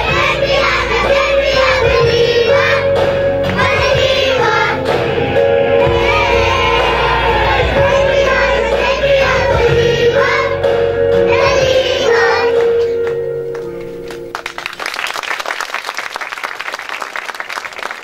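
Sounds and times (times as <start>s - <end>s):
children singing with music: 0.0s - 14.3s
audience clapping: 12.6s - 18.0s.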